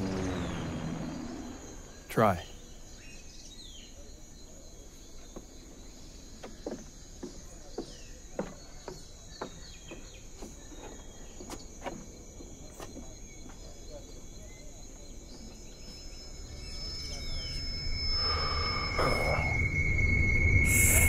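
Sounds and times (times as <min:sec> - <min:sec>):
insect drone: 0:00.0 - 0:21.0
faint high chirps: 0:13.0 - 0:21.0
short falling calls: 0:17.1 - 0:21.0.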